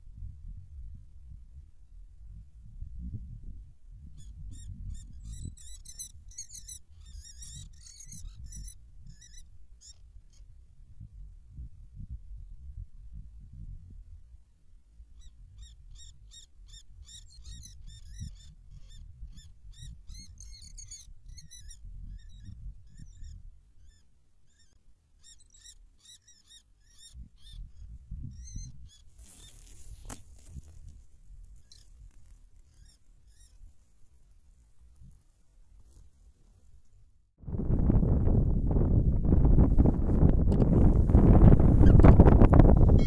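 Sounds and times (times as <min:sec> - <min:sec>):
wind rumble on microphone: 0:00.0 - 0:23.7, 0:27.1 - 0:33.8, 0:37.4 - 0:43.0
bird of prey calling: 0:04.2 - 0:10.4, 0:15.2 - 0:29.9, 0:32.7 - 0:33.6, 0:41.7 - 0:42.2
rustle: 0:29.0 - 0:37.1.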